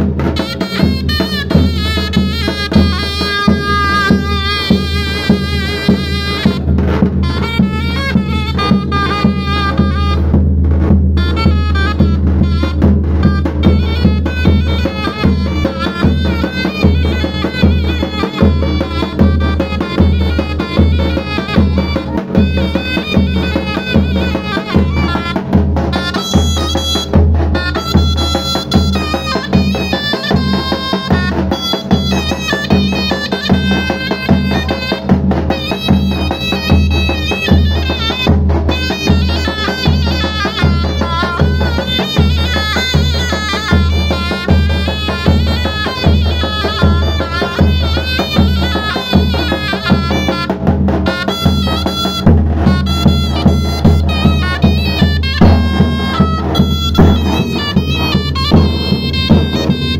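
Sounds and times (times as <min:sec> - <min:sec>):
bass drum beaten with mallet: 0:00.0 - 0:59.9
zurna folk melody: 0:00.0 - 0:59.9.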